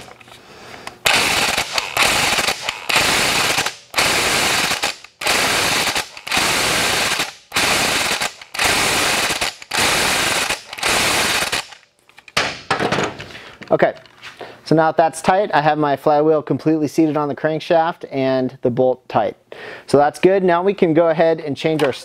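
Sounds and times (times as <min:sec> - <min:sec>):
impact wrench hammering: 0:01.0 - 0:11.8.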